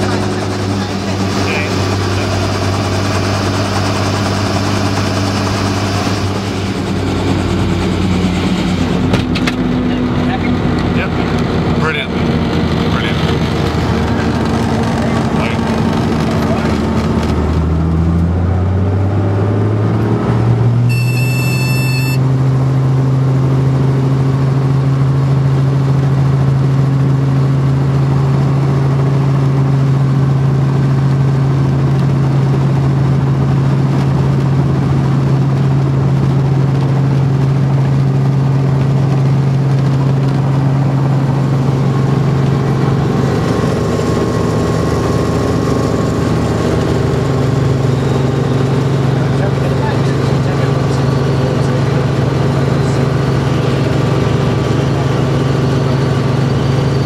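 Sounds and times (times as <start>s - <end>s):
helicopter engine and rotor hum: 0.0s - 19.2s, 20.9s - 57.0s
brief high tone: 20.9s - 22.3s.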